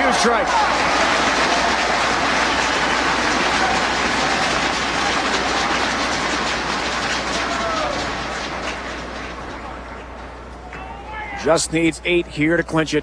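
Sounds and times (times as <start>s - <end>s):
crowd cheering: 0.0s - 12.2s
thundersticks clattering: 1.5s - 10.3s.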